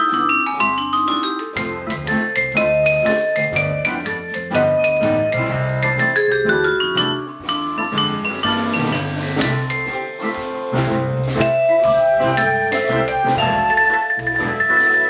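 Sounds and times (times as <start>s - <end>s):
vibraphone notes ringing: 0.0s - 15.0s
low bass: 8.0s - 9.9s.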